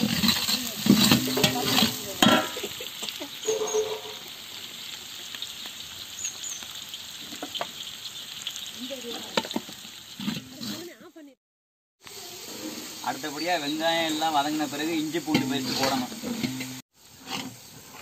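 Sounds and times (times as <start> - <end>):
oil crackling: 0.0 - 11.1
food sizzling in hot oil: 0.0 - 11.4, 12.0 - 18.0.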